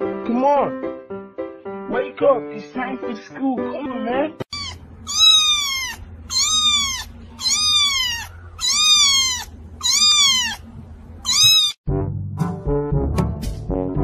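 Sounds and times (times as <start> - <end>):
kitten meowing: 4.5 - 11.8
brass music: 11.9 - 14.0.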